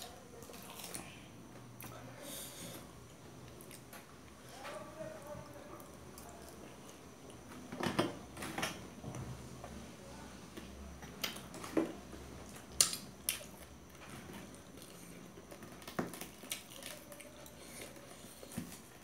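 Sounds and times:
chewing: 0:00.4 - 0:01.2, 0:12.5 - 0:19.0.

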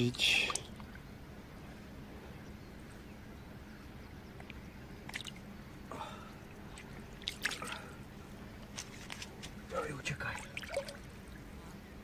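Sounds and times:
small water splashes: 0:00.2 - 0:01.0, 0:05.0 - 0:05.4, 0:06.5 - 0:08.0, 0:10.2 - 0:11.1.

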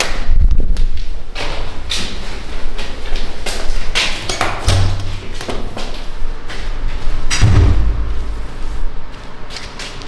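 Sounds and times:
heavy door opening: 0:04.1 - 0:05.8, 0:07.2 - 0:08.5
door thud: 0:07.3 - 0:08.2
low rumble: 0:07.4 - 0:09.0.

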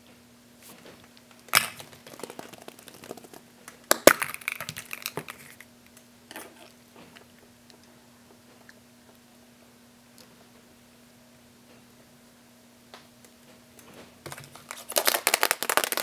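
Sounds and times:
plastic egg cracking open: 0:01.6 - 0:05.6
plastic capsules clacking: 0:03.9 - 0:05.6.

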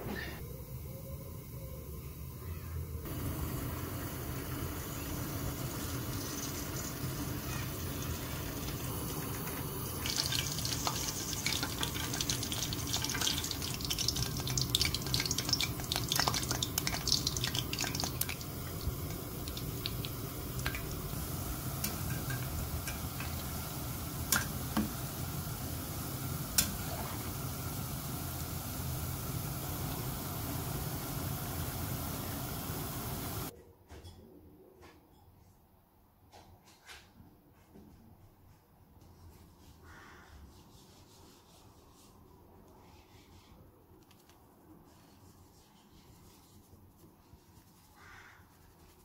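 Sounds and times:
steady low hum: 0:00.0 - 0:33.5
dough sizzling in hot oil: 0:03.0 - 0:33.5.

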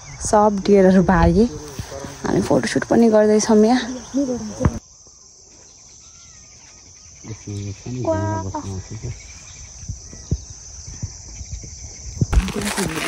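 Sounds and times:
insects chirring: 0:00.0 - 0:13.0
low voice-like sound: 0:07.3 - 0:09.2.

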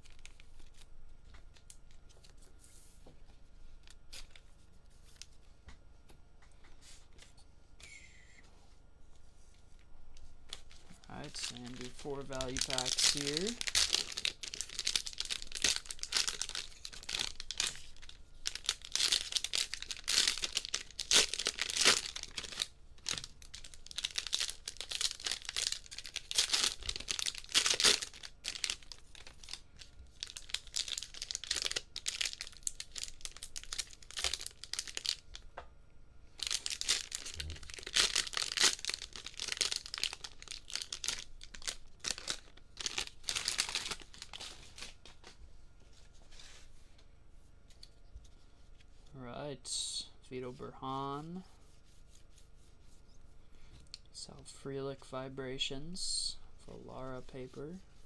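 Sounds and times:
plastic wrappers tearing and crinkling: 0:00.0 - 0:00.9, 0:10.5 - 0:35.4, 0:36.4 - 0:45.4.

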